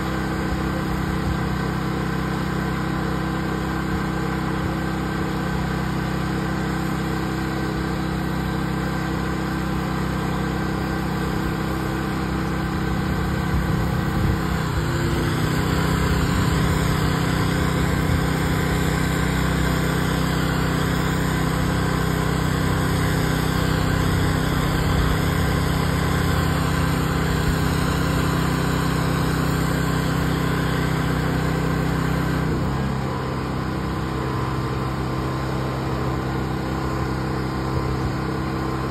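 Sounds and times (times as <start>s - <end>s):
pressure washer engine running: 0.0s - 38.9s
water spray hissing on concrete: 3.8s - 32.4s.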